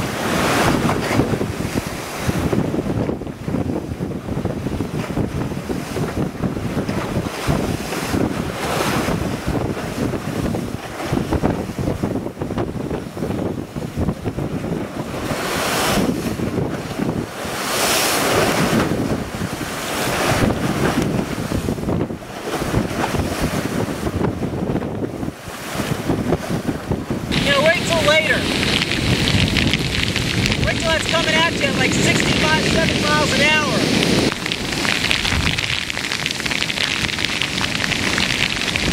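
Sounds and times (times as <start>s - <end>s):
waves crashing against a wall: 0.0s - 38.9s
wind buffeting microphone: 0.0s - 38.9s.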